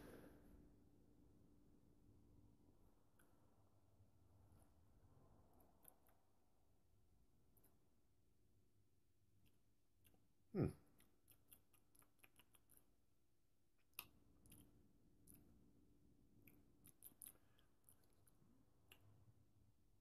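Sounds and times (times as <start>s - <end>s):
lip smacks and mouth clicks: 9.3s - 15.6s, 16.3s - 19.4s.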